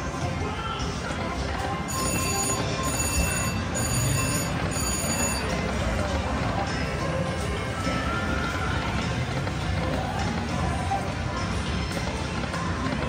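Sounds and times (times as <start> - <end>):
casino background din: 1.0 - 13.0
electronic ringing pulses: 1.8 - 6.0
slot machine reels spinning: 1.8 - 12.9.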